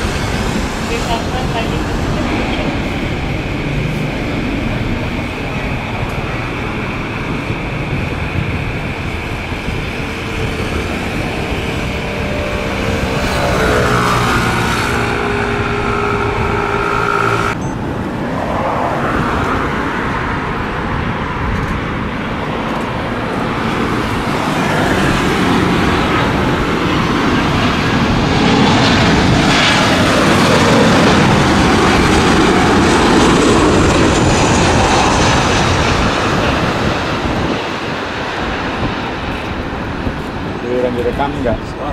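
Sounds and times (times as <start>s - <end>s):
jet engines spooling up: 0.0s - 20.8s
falling jet whine: 0.0s - 41.9s
jet approaching rushing noise: 0.0s - 41.9s.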